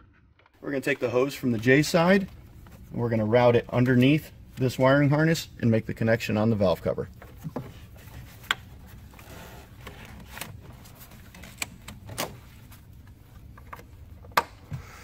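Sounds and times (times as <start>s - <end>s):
rubber hose rubbing: 7.1s - 14.0s.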